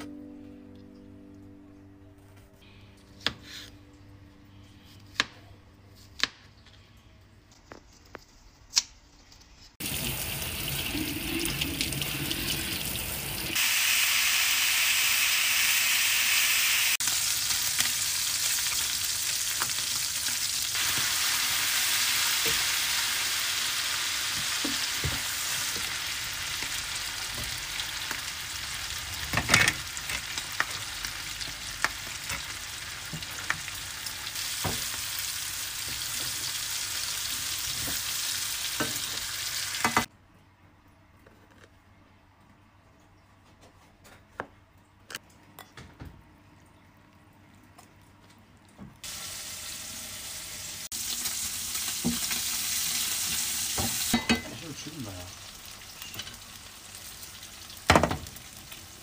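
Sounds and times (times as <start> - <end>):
meat sizzling in a frying pan: 9.8 - 40.1, 49.0 - 59.0.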